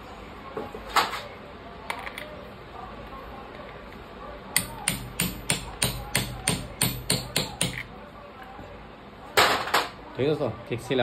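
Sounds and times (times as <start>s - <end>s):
hammer tapping a metal tube: 4.6s - 7.9s.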